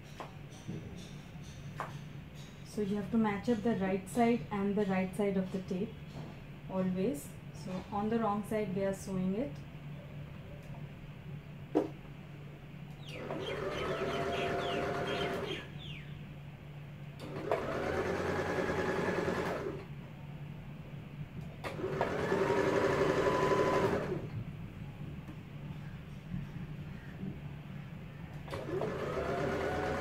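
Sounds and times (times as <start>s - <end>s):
electric sewing machine stitching: 13.2s - 15.6s, 17.2s - 19.9s, 21.6s - 24.3s, 28.5s - 30.0s.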